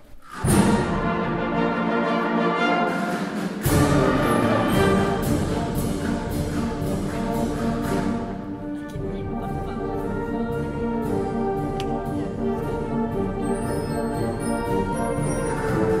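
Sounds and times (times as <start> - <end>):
percussion strokes: 0.0 - 1.5, 2.8 - 9.4
orchestral music with brass: 0.3 - 16.0.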